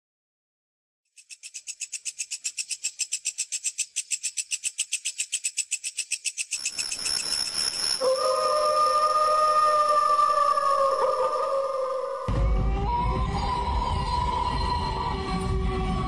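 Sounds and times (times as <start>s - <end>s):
high-pitched pulsing trill: 6.6s - 9.2s
eerie held music tones: 7.8s - 16.0s.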